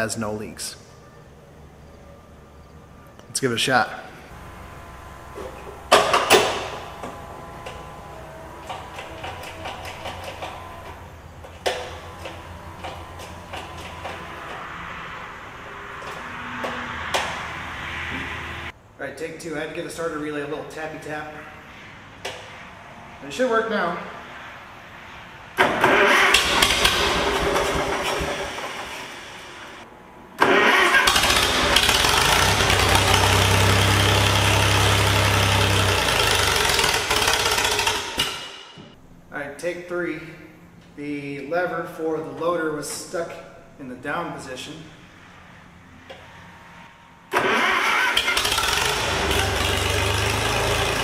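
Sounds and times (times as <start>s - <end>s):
engine cranking and starting: 4.3s - 15.4s, 25.6s - 29.8s, 30.4s - 38.6s, 47.3s - 51.0s
mechanical clunks and clicks: 5.3s - 14.6s.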